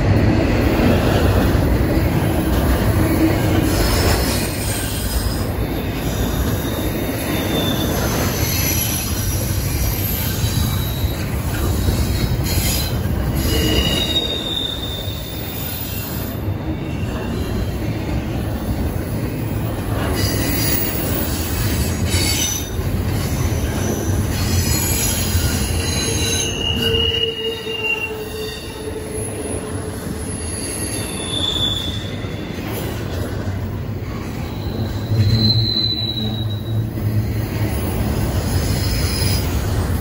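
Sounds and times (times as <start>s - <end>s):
freight train wheels rumbling: 0.0s - 40.0s
high-pitched wheel squeals: 3.8s - 17.7s, 23.6s - 32.9s, 34.4s - 37.0s.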